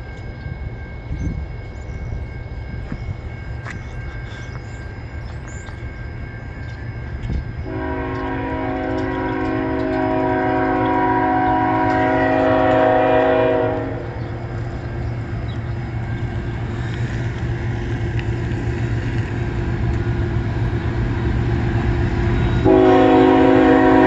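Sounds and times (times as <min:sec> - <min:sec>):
train rumble: 0:00.0 - 0:24.0
locomotive air horn: 0:07.7 - 0:14.2, 0:22.6 - 0:24.0.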